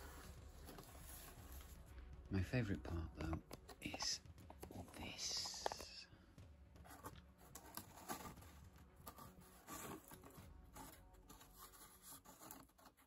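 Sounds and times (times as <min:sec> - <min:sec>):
cardboard scraping and tapping: 0:06.8 - 0:13.0.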